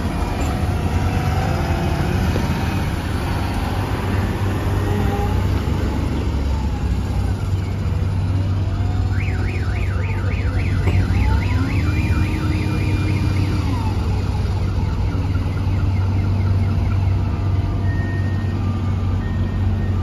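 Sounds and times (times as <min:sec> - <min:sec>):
diesel engine drone: 0:00.0 - 0:20.0
warbling warning alarm: 0:08.5 - 0:20.0.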